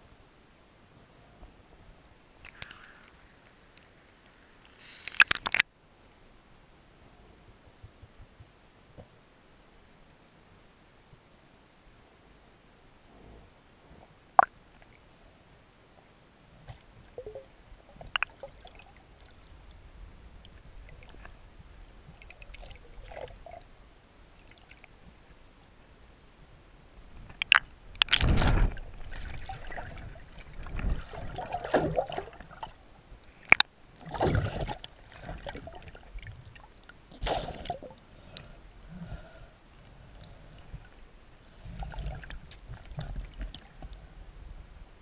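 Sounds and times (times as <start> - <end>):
faint underwater ticks: 1.4 - 5.7, 24.3 - 31.2, 37.7 - 44.2
gurgling rushes of water: 27.3 - 38.2, 40.0 - 44.8.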